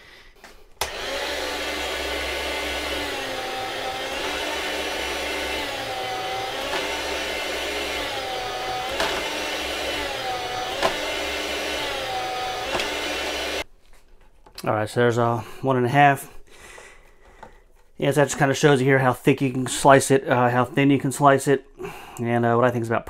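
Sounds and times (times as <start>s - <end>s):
electric meat slicer humming: 0.8s - 13.7s.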